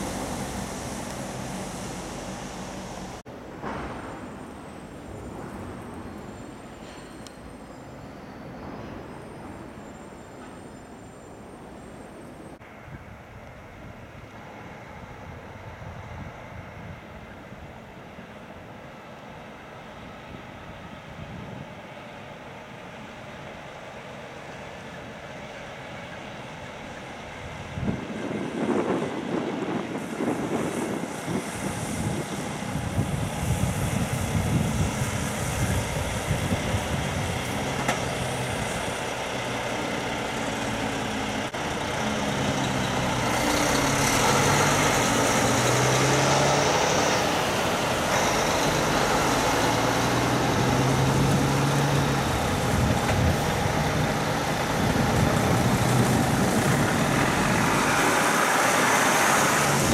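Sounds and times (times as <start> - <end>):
diesel trucks driving past: 0.0 - 59.9.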